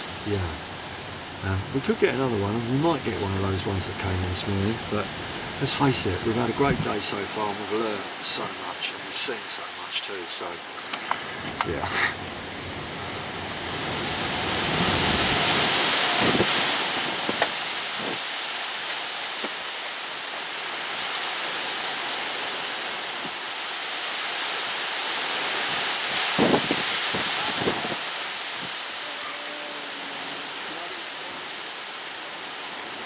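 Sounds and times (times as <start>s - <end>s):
wind rushing in gusts: 10.6s - 29.0s.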